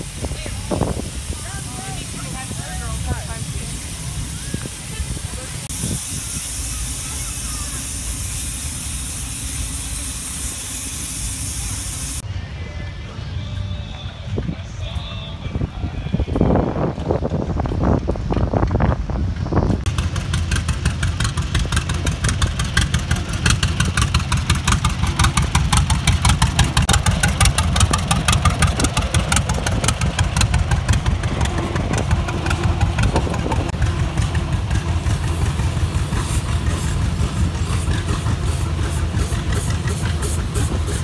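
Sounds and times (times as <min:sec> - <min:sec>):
antique engine running: 0:16.8 - 0:41.0.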